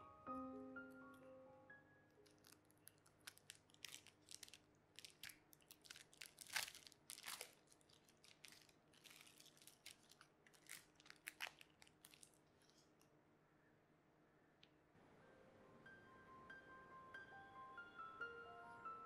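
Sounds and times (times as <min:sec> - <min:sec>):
plastic film crinkling: 0:02.2 - 0:13.0.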